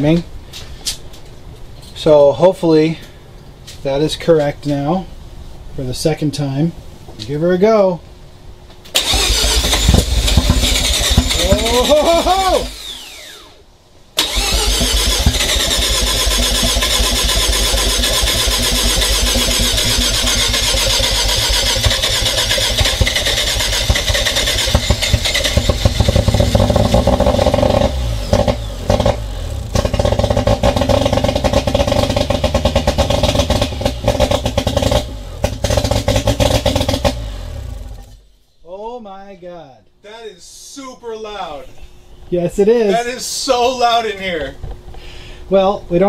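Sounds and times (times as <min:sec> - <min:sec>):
rotary engine running loud: 0:14.8 - 0:38.1.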